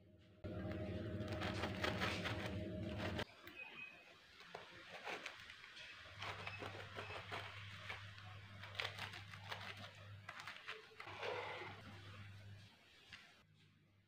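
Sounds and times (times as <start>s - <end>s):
steady low hum: 0.0s - 3.2s.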